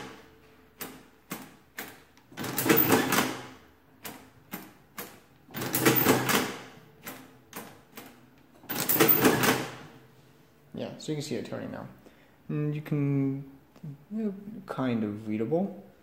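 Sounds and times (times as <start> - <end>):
adding machine crank clatter: 2.4 - 3.5, 8.6 - 9.8.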